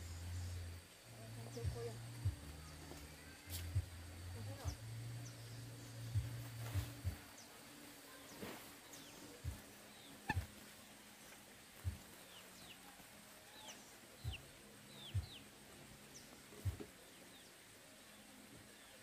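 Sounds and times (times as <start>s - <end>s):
small birds chirping: 0.0s - 19.0s
dull low thumps: 1.4s - 2.7s, 3.6s - 7.3s, 9.4s - 9.7s, 11.8s - 12.1s, 15.1s - 15.4s.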